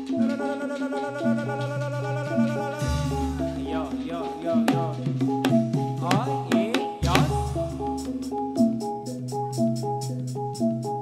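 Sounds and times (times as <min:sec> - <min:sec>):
dance music melody: 0:05.4 - 0:11.0.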